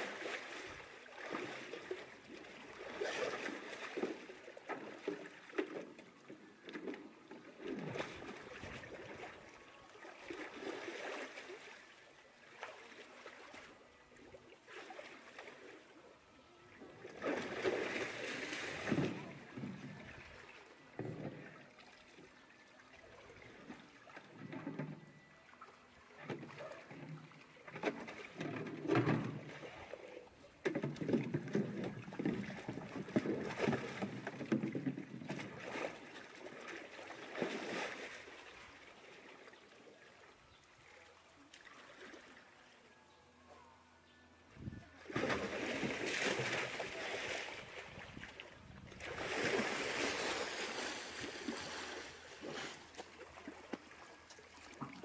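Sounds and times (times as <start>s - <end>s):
water splashing and sloshing: 0.0s - 42.9s, 44.4s - 55.0s.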